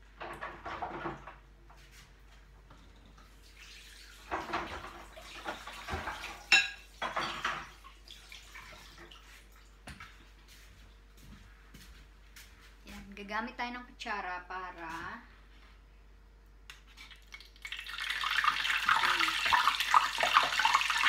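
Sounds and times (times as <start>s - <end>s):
tap water running: 2.8s - 10.2s, 16.7s - 21.0s
faint steady hum: 6.0s - 21.0s.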